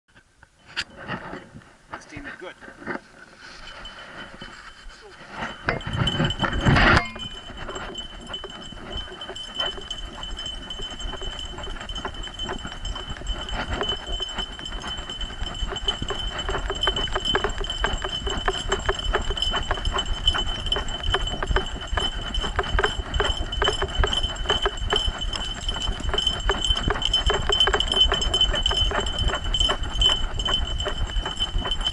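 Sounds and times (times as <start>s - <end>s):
steady high tone: 5.0s - 31.9s
harness and camera mount rattling: 5.3s - 30.2s.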